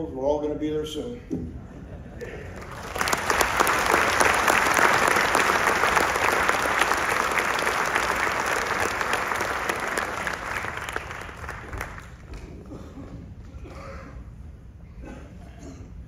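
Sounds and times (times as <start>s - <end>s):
audience applauding: 2.2s - 12.6s.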